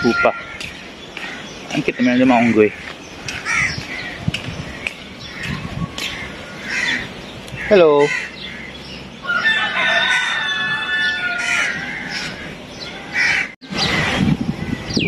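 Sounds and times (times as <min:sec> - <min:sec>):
rooster crowing: 0:00.0 - 0:00.6, 0:08.5 - 0:13.5.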